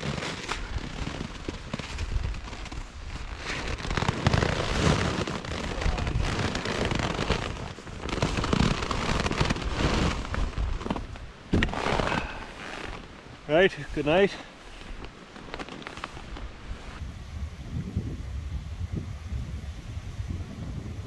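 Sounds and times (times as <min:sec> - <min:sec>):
hammock fabric rustling: 0:00.0 - 0:17.5
tarp flapping in wind: 0:00.0 - 0:21.0
wind buffeting microphone: 0:05.7 - 0:06.6, 0:16.4 - 0:21.0.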